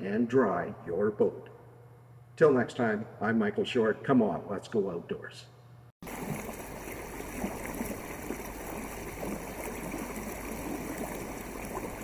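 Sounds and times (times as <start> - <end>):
water lapping along canoe hull: 6.0 - 12.0.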